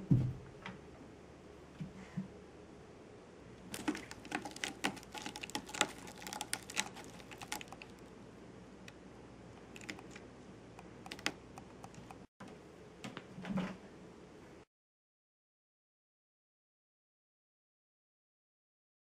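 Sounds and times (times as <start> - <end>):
cat scratching rope post: 3.7 - 8.0, 9.8 - 10.2, 10.8 - 12.3.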